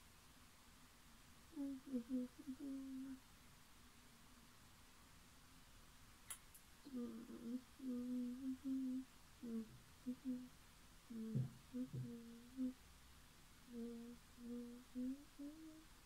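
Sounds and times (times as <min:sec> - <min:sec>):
person humming: 0:01.5 - 0:03.2, 0:06.8 - 0:10.5, 0:11.1 - 0:12.8, 0:13.7 - 0:15.9.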